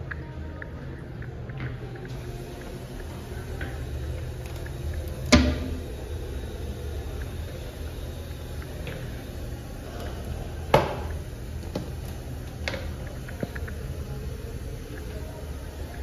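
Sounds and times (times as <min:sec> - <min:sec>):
steady low hum: 0:00.0 - 0:16.0
toilet seat clacking: 0:05.2 - 0:05.9, 0:10.7 - 0:12.0.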